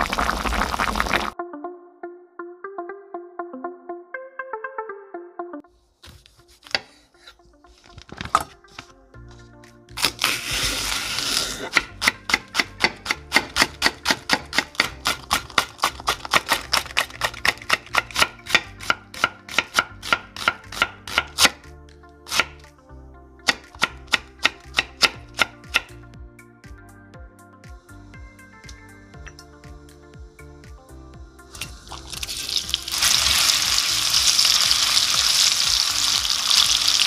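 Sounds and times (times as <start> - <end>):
faint background music: 1.3 - 37.0
knife chopping on wooden board: 11.4 - 21.6, 23.5 - 25.9.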